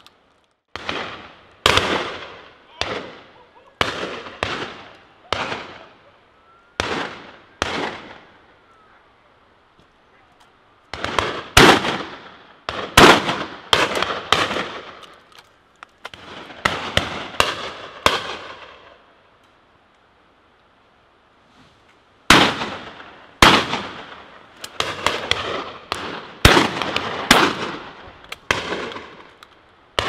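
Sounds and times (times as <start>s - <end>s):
shotgun shots with echo: 11.0s - 15.0s, 22.3s - 24.2s, 24.8s - 27.9s.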